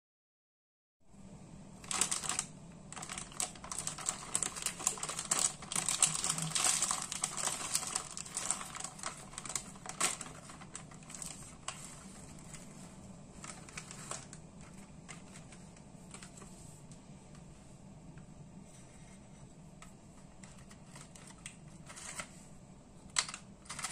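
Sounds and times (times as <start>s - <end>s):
plastic wrapper crinkling: 1.8s - 16.4s, 20.3s - 22.4s, 23.1s - 23.9s.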